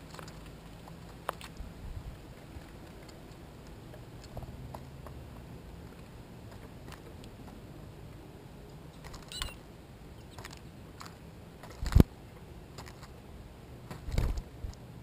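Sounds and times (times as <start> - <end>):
birds pecking at seed: 0.0 - 15.0.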